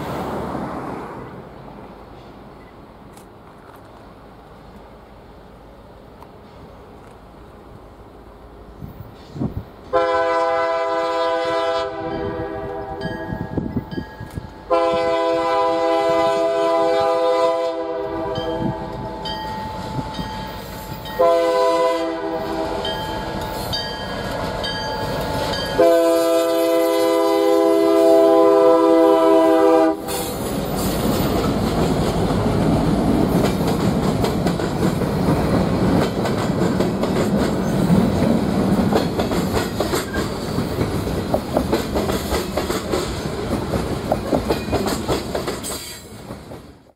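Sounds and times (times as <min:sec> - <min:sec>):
train rumbling past: 0:00.0 - 0:46.9
locomotive air horn blasts: 0:09.9 - 0:13.1, 0:14.6 - 0:18.9, 0:21.1 - 0:23.0, 0:25.8 - 0:30.4
wheels clattering over rail joints: 0:30.4 - 0:46.8.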